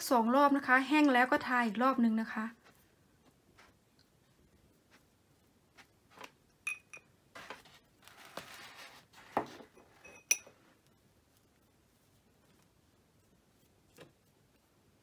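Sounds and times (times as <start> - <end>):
ringing clinks on glass jar: 6.7 - 7.1, 10.0 - 10.5.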